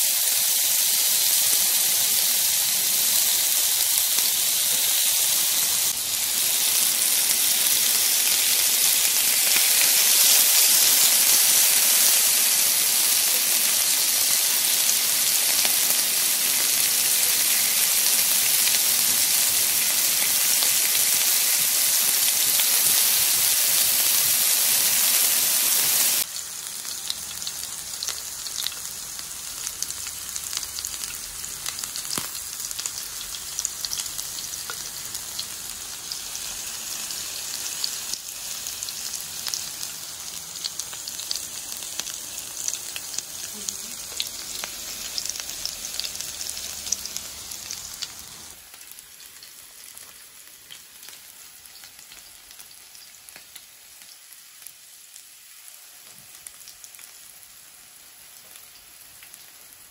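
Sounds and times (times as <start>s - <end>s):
meat sizzling on a grill: 0.0s - 59.9s
crackles: 26.1s - 36.7s.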